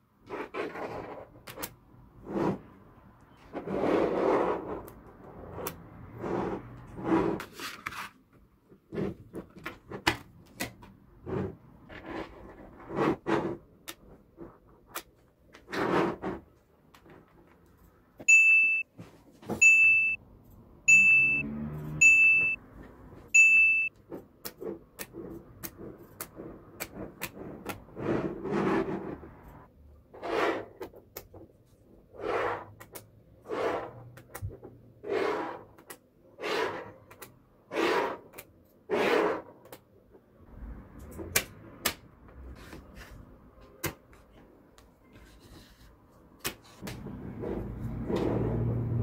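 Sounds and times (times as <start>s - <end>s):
short high beeps: 18.3s - 18.8s, 19.6s - 20.2s, 20.9s - 21.4s, 22.0s - 22.6s, 23.4s - 23.9s.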